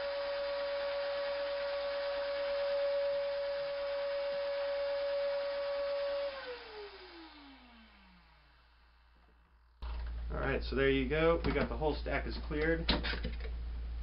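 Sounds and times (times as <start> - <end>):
shop vacuum whine: 0.0 - 10.4.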